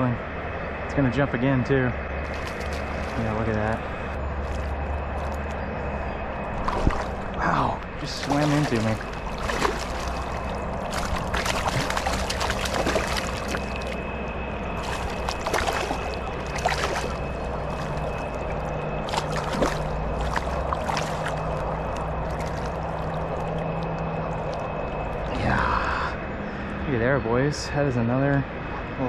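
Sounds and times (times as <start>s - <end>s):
fish splashing at surface: 2.3s - 3.3s, 6.6s - 7.3s, 8.0s - 14.1s, 14.8s - 25.3s
river current rushing: 6.4s - 26.1s.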